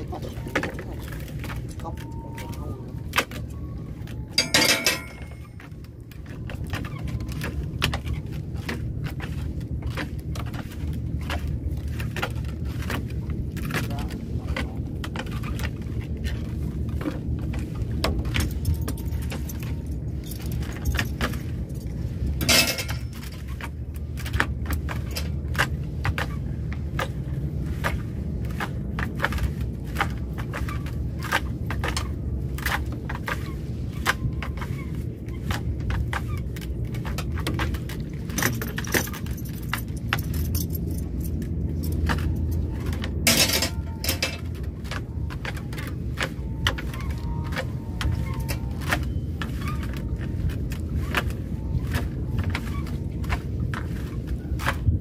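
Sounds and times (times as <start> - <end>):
low steady rumble: 0.0 - 55.0
net line and mesh clattering: 4.3 - 6.8, 22.4 - 23.6, 37.0 - 44.5.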